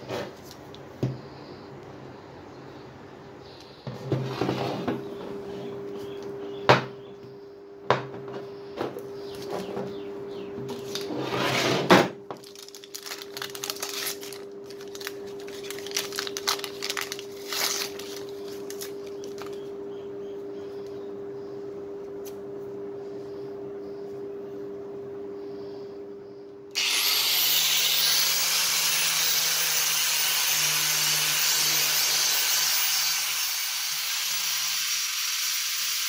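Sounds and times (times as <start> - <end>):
steady hum: 11.9 - 33.3
paper wrapping rustling: 12.4 - 19.6.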